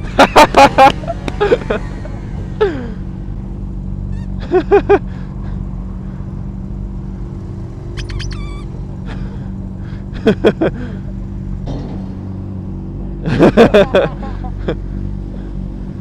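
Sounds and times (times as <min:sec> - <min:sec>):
motorcycle engines idling: 0:00.0 - 0:16.0
short loud pitched sounds: 0:08.0 - 0:08.7.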